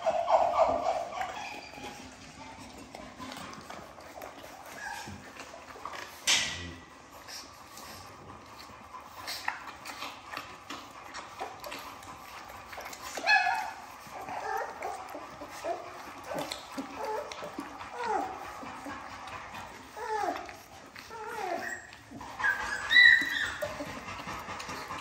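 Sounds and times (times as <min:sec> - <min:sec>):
puppy crying out: 0:00.0 - 0:02.2, 0:13.1 - 0:18.9, 0:19.9 - 0:24.0
puppy whimpers and yelps: 0:00.0 - 0:06.2, 0:11.4 - 0:25.0
puppies licking and chewing: 0:00.0 - 0:25.0.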